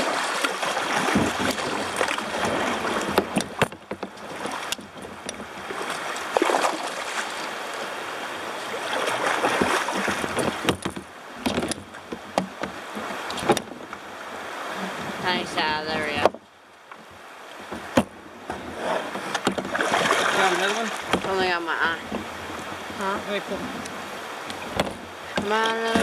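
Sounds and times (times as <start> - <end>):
paddle splashes: 0.0 - 26.0
river water rushing: 0.0 - 26.0
sharp knocks and clicks: 3.0 - 5.5, 9.5 - 14.0, 17.7 - 19.8, 21.0 - 21.4, 24.5 - 26.0.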